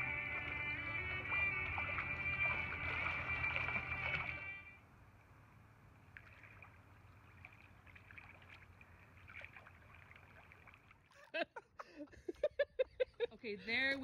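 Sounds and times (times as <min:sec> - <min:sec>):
swimmer splashing in water: 0:00.0 - 0:04.6
background music: 0:00.0 - 0:04.8.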